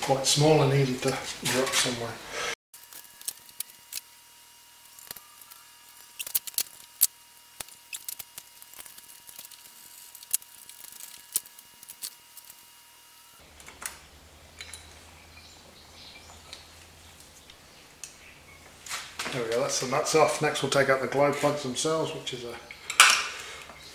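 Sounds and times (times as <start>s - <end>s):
low hum: 3.0s - 18.8s.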